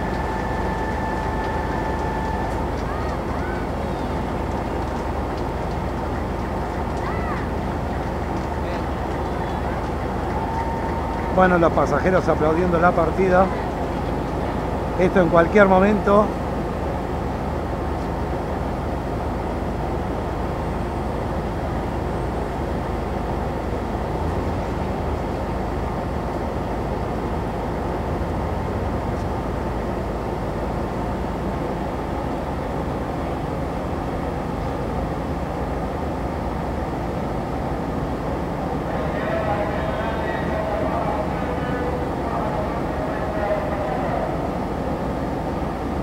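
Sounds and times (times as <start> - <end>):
locomotive idling low hum: 0.0 - 46.0.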